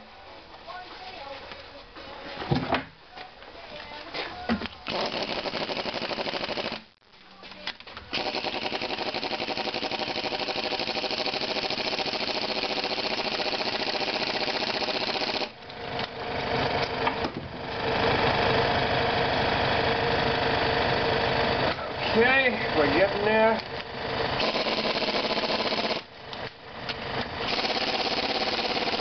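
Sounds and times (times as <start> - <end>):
air impact wrench hammering: 4.9 - 6.9, 8.1 - 16.2, 24.4 - 29.0.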